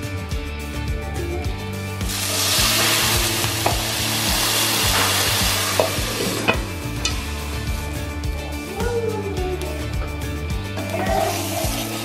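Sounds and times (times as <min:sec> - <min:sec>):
loud sizzle in a frying pan: 0:02.0 - 0:08.2, 0:10.2 - 0:12.0.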